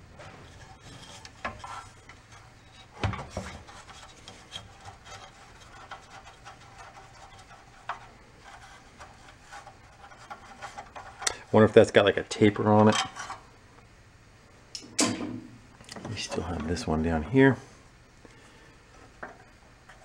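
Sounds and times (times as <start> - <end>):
screwdriver scraping metal: 0.6 - 11.3.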